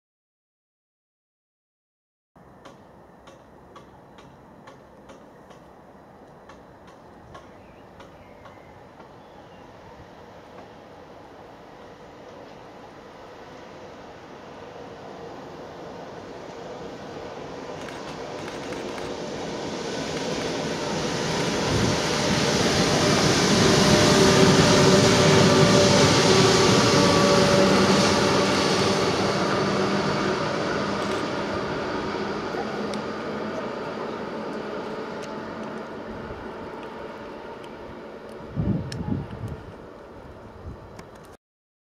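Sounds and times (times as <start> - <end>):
electric locomotive hum: 2.4 - 41.4
locomotive wheels rumbling on rails: 15.4 - 40.9.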